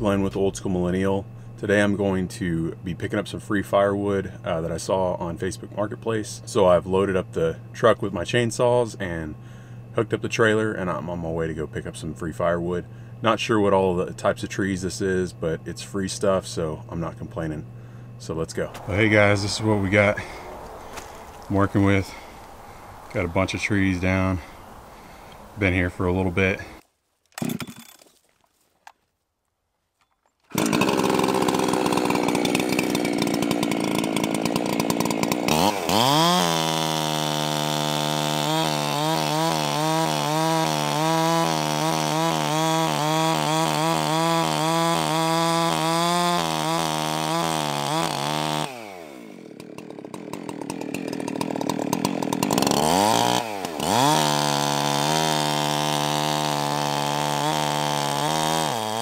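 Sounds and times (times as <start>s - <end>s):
chainsaw cutting a log: 11.9s - 22.3s, 27.4s - 28.0s, 30.5s - 59.0s.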